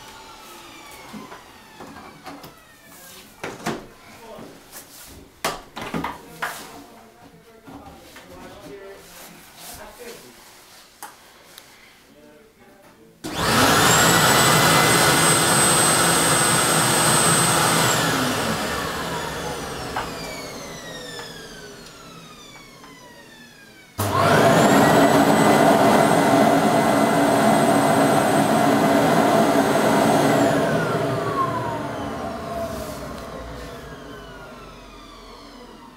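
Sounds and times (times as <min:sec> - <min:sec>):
vacuum motor whine: 0:00.0 - 0:03.1, 0:13.2 - 0:35.9
motor spinning down: 0:13.3 - 0:35.9.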